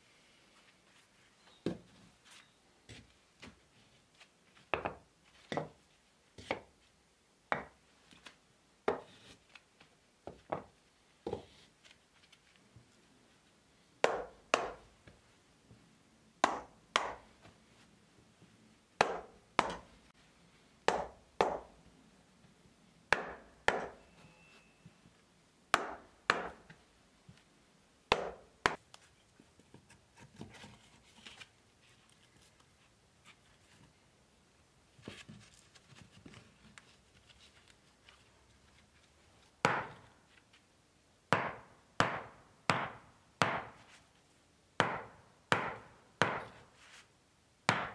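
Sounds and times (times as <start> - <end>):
hammer knocking wood blocks: 14.0 - 14.9, 16.4 - 17.3, 19.0 - 19.9, 20.9 - 21.8, 23.1 - 24.0, 25.7 - 26.7, 28.1 - 28.8, 39.6 - 40.1, 41.3 - 43.8, 44.8 - 46.6, 47.7 - 47.9.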